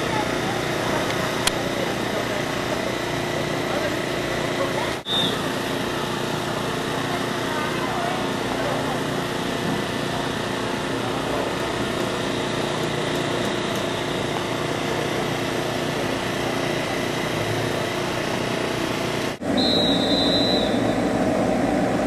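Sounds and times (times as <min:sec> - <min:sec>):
kart engines droning: 0:00.0 - 0:22.0
high steady tone: 0:19.4 - 0:21.2.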